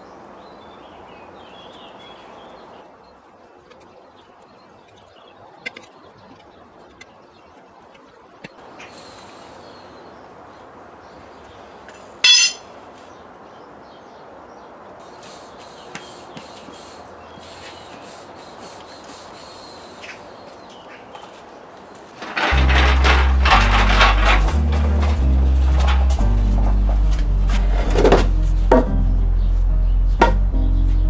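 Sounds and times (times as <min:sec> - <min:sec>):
birds chirping: 0:00.0 - 0:31.0
metal tyre lever clanging: 0:12.2 - 0:12.7.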